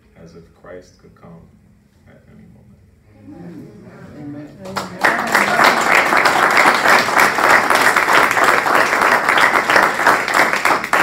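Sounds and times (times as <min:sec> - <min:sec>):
congregation applauding: 0:04.6 - 0:11.0.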